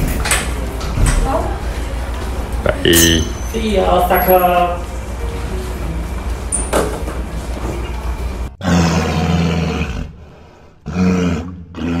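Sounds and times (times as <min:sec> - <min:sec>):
low growling animal roar: 0:08.6 - 0:12.0.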